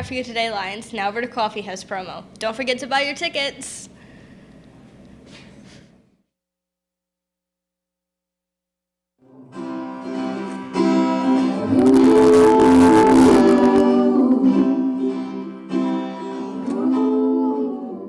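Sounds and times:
acoustic guitar: 9.2 - 18.0
person singing: 10.2 - 18.0.

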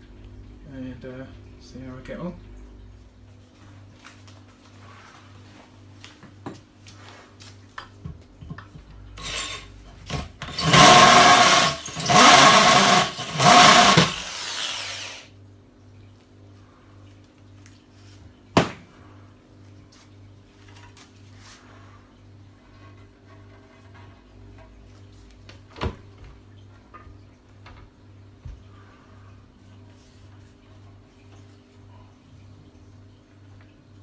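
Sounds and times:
electric drill hole saw cutting: 9.2 - 15.4.

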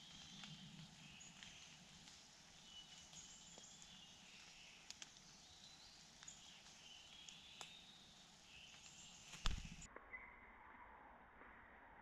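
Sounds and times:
soft ticks: 2.9 - 5.4, 6.1 - 7.8.

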